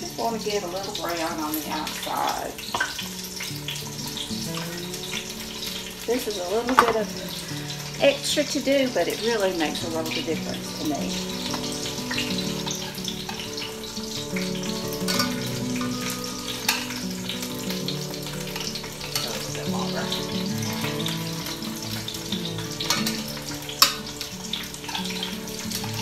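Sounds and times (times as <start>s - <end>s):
onions sizzling in hot oil: 0.0s - 26.0s
metal tongs clicking against pot: 15.1s - 16.0s, 16.6s - 17.0s.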